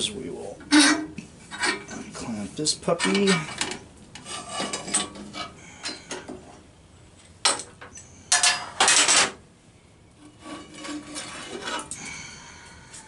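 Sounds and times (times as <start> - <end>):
metal-on-metal scrape: 0.7 - 2.0, 2.9 - 6.2, 10.2 - 12.0.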